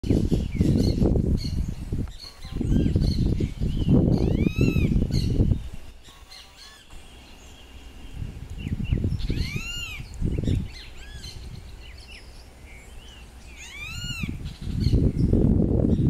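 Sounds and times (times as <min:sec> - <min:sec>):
small birds chirping: 0:00.0 - 0:16.0
low rumbles: 0:06.9 - 0:16.0.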